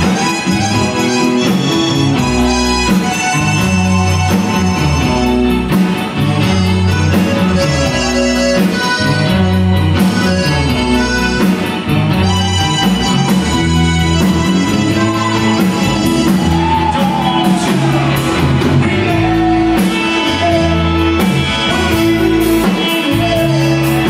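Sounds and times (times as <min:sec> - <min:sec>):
button accordion: 0:00.0 - 0:16.6
bass guitar notes: 0:00.0 - 0:24.0
live band playing: 0:00.0 - 0:24.0.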